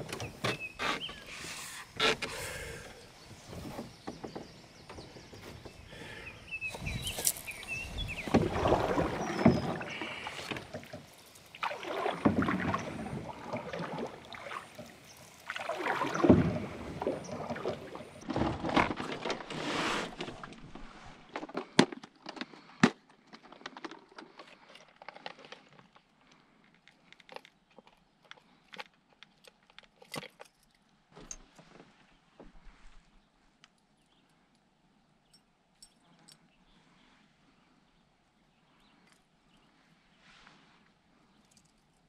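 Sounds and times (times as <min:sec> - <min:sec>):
canoe paddle strokes in water: 0:06.7 - 0:21.6.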